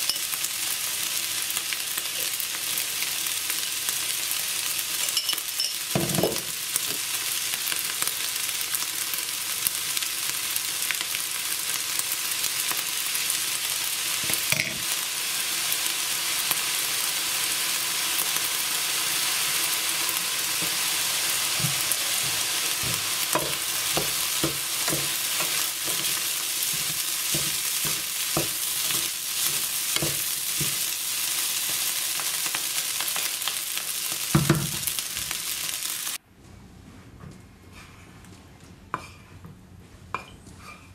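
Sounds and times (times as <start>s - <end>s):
rice sizzling in a frying pan: 0.0s - 36.2s
wooden spoon knocking on a pan: 21.6s - 25.2s, 26.8s - 28.6s.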